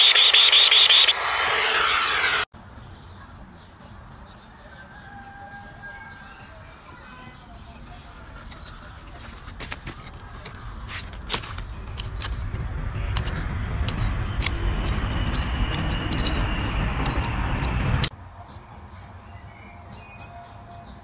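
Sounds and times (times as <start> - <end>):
metal tool scraping soil: 7.9 - 18.1
low rumble: 10.6 - 18.1.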